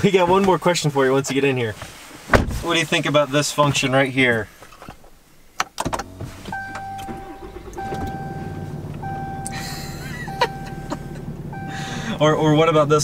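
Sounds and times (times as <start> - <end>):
engine starting and idling: 5.8 - 12.4
dashboard warning chime: 6.0 - 12.2.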